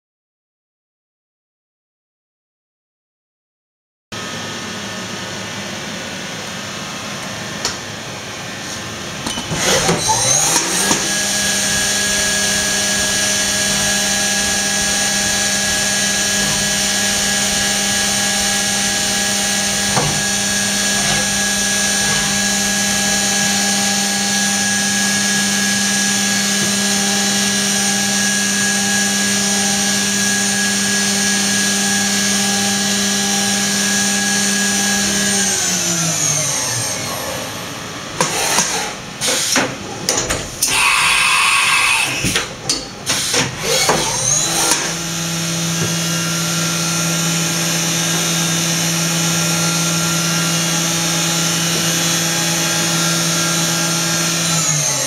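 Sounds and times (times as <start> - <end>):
machine hum: 4.2 - 38.3
machine spindle whining: 7.1 - 55.0.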